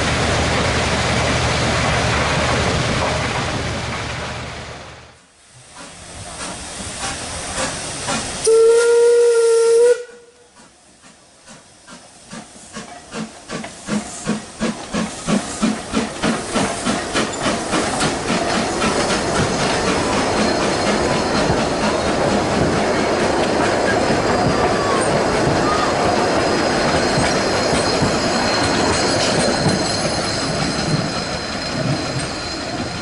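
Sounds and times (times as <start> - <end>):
steam hissing: 5.4 - 33.0
steam locomotive exhaust beats: 5.4 - 33.0
steam locomotive whistle: 8.4 - 10.7.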